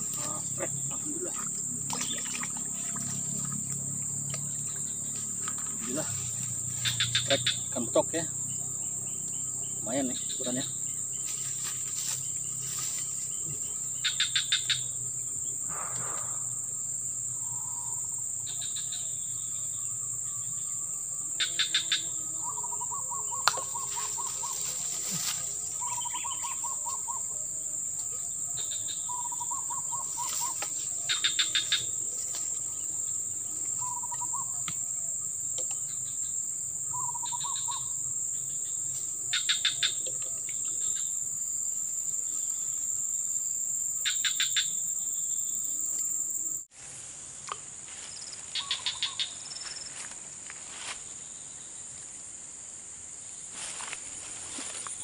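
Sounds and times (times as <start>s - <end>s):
high-pitched insect drone: 0.0s - 46.7s
bird calling: 21.4s - 27.5s, 28.1s - 32.8s, 33.6s - 36.2s, 36.9s - 38.0s, 48.6s - 49.4s.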